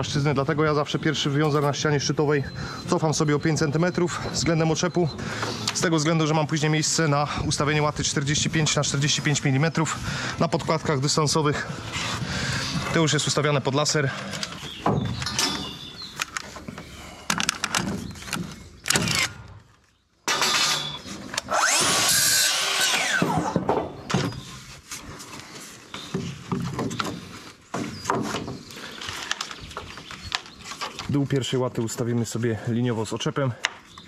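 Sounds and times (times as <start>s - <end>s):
timber battens clattering: 0.2s - 21.8s, 25.9s - 32.8s
track saw cutting timber: 20.3s - 23.6s.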